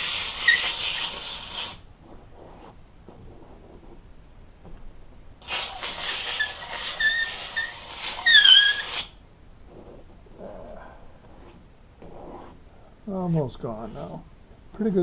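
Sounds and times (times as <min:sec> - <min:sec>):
steamer hissing: 0:00.0 - 0:01.8
short squeaks: 0:06.2 - 0:09.2.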